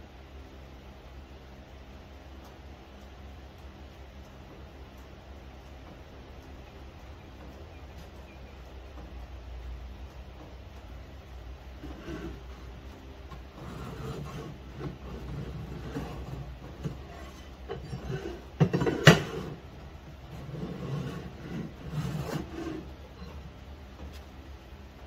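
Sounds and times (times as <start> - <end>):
steel scraping against metal scriber: 13.6 - 19.6, 20.3 - 23.4.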